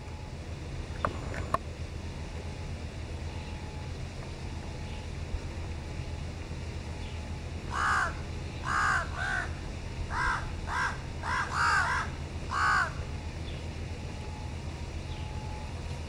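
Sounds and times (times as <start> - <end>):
crow cawing: 7.7 - 13.1.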